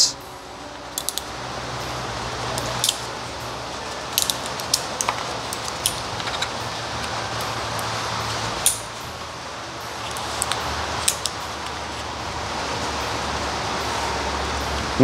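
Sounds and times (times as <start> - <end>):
low hum: 0.0 - 15.0
small magnets clicking and clinking: 1.0 - 1.2, 2.6 - 3.1, 3.9 - 7.2.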